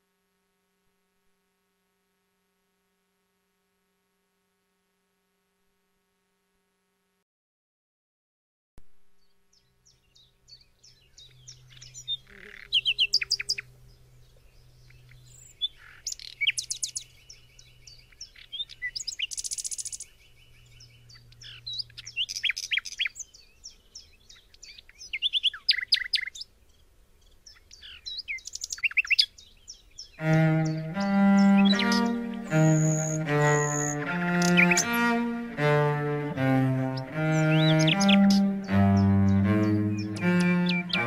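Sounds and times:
nightingale singing: 9.1 - 41.0.

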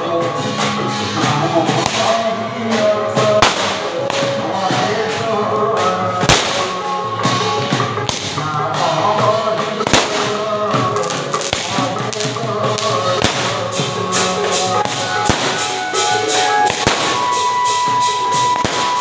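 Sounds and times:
firecrackers crackling: 0.0 - 19.0
music: 0.0 - 19.0
heavy firecracker bangs: 1.7 - 5.0, 6.2 - 8.6, 9.8 - 19.0.

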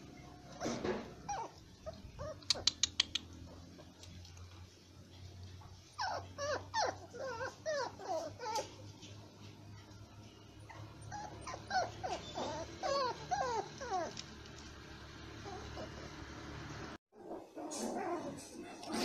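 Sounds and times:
puppies whimpering and whining: 0.1 - 3.3, 5.5 - 14.3, 15.4 - 16.2, 17.5 - 19.0.

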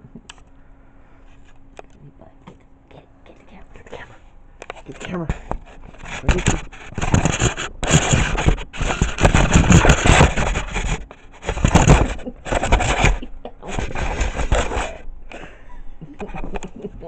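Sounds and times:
cat rubbing against phone microphone: 3.7 - 15.0.

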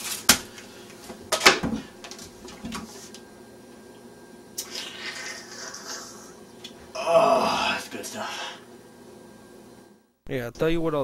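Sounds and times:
slurping through a straw: 4.6 - 6.4.

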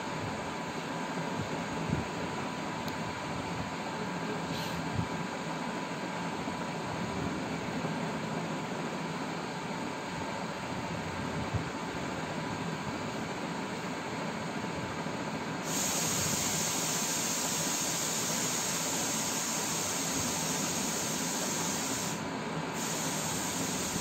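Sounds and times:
bright high hiss: 15.6 - 24.0
steady hiss: 15.6 - 24.0.

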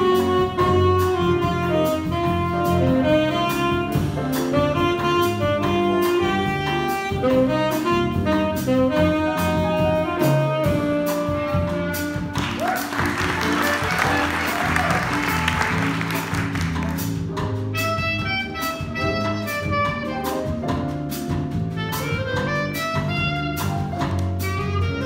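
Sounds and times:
alto saxophone solo: 0.0 - 16.8, 17.6 - 20.8, 21.7 - 25.0
jazz combo playing bossa nova: 0.0 - 25.0
audience applauding: 12.4 - 17.2.

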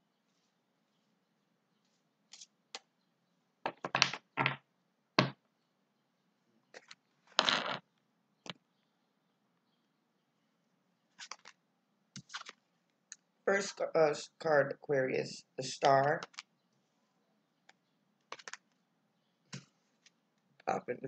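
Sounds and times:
cards rustling: 11.2 - 11.6, 12.2 - 12.6, 15.7 - 16.5, 18.3 - 18.8
cards slapping and clacking: 11.2 - 11.6, 12.2 - 12.6, 15.8 - 16.4, 18.3 - 18.7.

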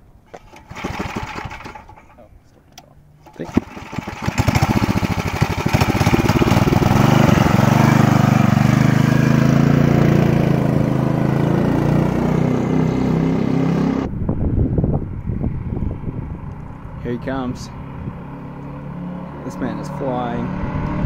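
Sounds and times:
mini bike engine revving: 0.3 - 2.2, 3.2 - 14.1.

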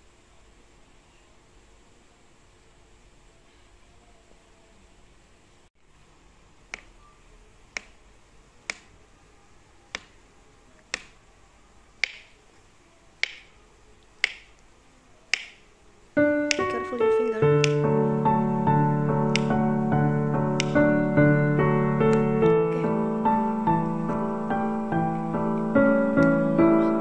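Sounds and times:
piano music: 16.2 - 27.0.

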